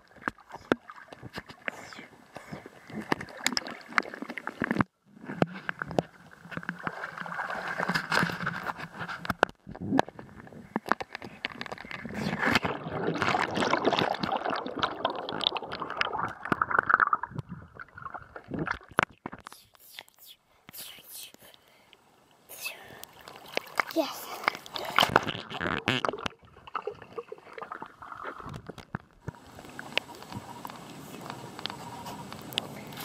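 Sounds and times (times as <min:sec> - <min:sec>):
muffled water gurgling and sloshing: 0:00.0 - 0:19.1, 0:24.4 - 0:33.0.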